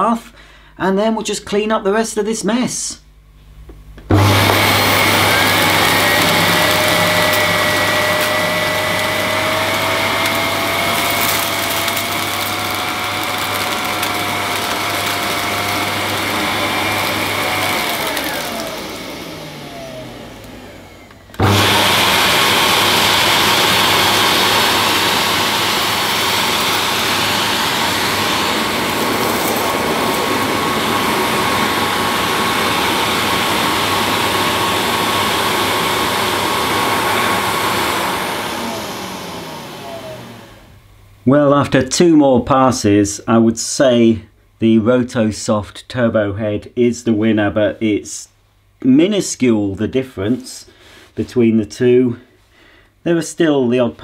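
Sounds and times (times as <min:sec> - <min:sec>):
vacuum cleaner running on carpet: 0:04.1 - 0:40.8
vacuum motor winding down: 0:04.1 - 0:40.8.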